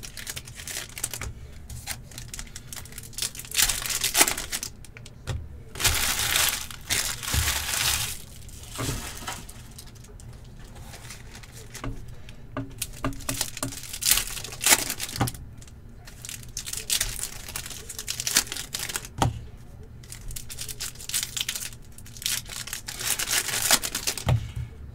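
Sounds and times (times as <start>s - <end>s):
pack tearing open: 0.0s - 4.8s, 5.8s - 10.1s, 16.1s - 19.1s, 20.1s - 24.3s
foil wrappers crinkling: 0.0s - 19.2s, 20.0s - 24.4s.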